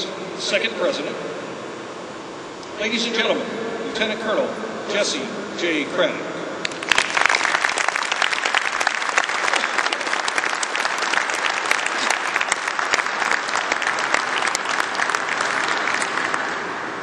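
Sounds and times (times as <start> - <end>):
large audience applauding: 6.6 - 17.0.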